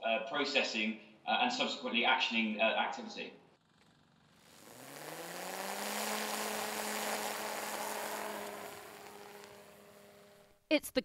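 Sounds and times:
electric propeller motor hum: 3.6s - 10.6s.

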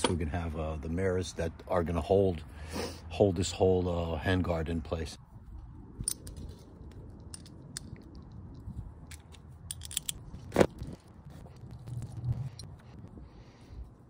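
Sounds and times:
low steady rumble: 3.4s - 14.0s
metal hardware clinking: 9.1s - 10.5s.

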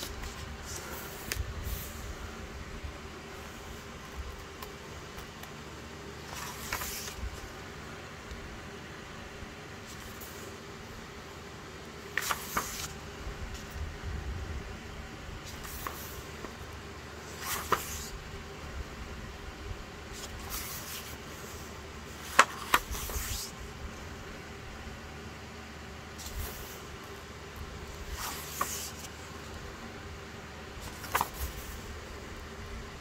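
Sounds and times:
paper pages turning: 0.0s - 2.1s, 6.2s - 7.5s, 9.8s - 10.5s, 12.0s - 13.8s, 15.4s - 18.2s, 20.1s - 23.6s, 26.2s - 27.0s, 27.9s - 29.5s, 30.8s - 31.9s.

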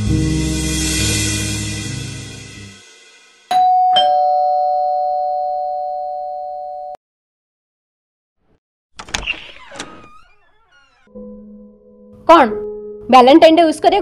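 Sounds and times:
background music: 0.0s - 3.5s, 11.1s - 14.0s
doorbell ding-dong chime: 3.5s - 7.0s.

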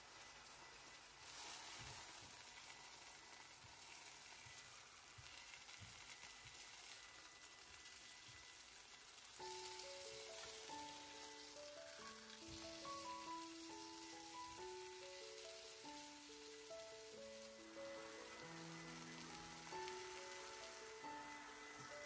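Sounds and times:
chicken sizzling in oil: 0.0s - 22.0s
music with steady notes: 9.3s - 22.0s.

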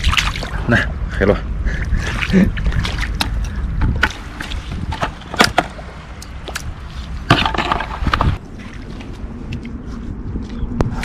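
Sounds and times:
footsteps splashing in water: 0.0s - 0.5s, 2.0s - 7.2s.

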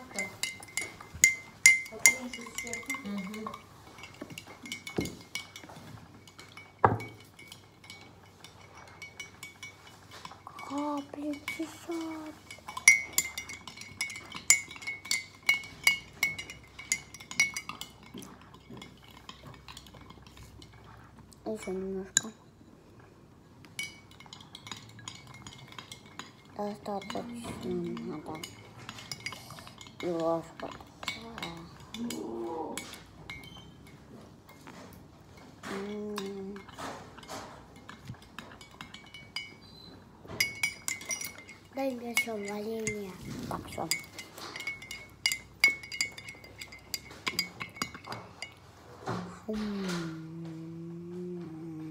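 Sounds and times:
metal spoon clinking glass bowl: 0.0s - 22.5s, 23.7s - 50.0s
person humming: 49.2s - 51.9s.

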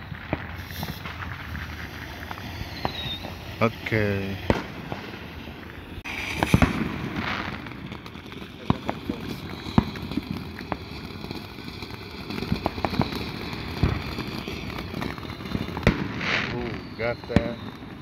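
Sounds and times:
firework fountain hissing: 0.0s - 18.0s
sharp pops and crackles: 0.0s - 18.0s.

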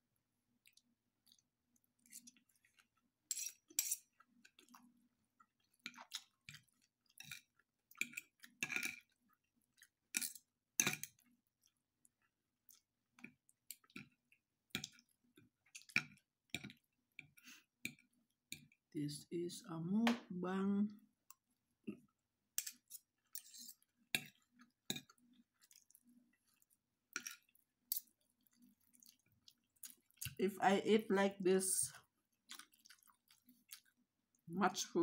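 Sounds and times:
chewing: 0.6s - 18.8s, 21.3s - 30.4s, 32.0s - 34.5s
cutlery scraping on a plate: 3.3s - 4.0s, 22.6s - 24.3s.

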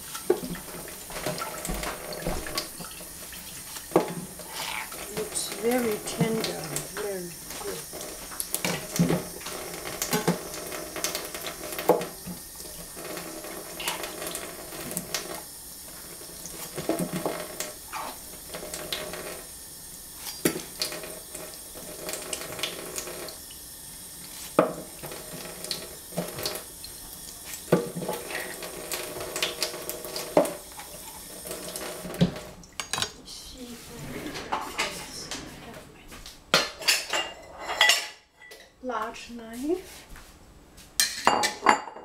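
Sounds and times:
kitchen tap running: 0.0s - 33.3s.

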